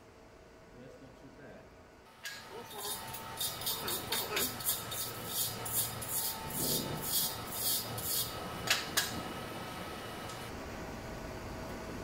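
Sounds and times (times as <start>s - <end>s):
brush scrubbing metal tube: 2.7s - 8.3s.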